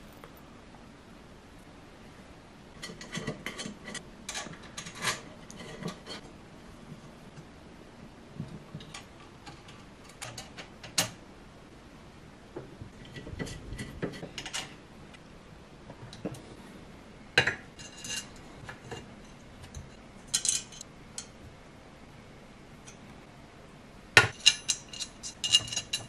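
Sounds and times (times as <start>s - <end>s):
metal parts clicking and clinking: 17.8s - 19.0s, 19.6s - 21.3s, 24.3s - 26.0s.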